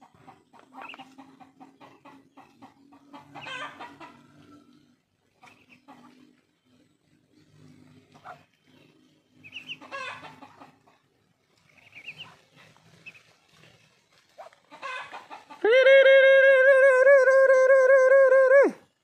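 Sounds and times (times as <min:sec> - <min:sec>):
hens clucking: 0:00.0 - 0:19.0
high-pitched peeping chirps: 0:09.4 - 0:09.9, 0:11.7 - 0:12.4.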